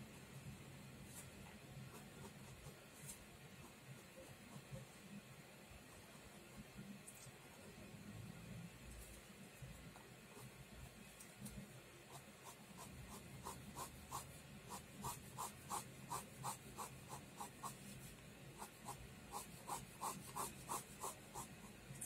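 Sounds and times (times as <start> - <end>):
pen scratching on paper: 12.0 - 21.8.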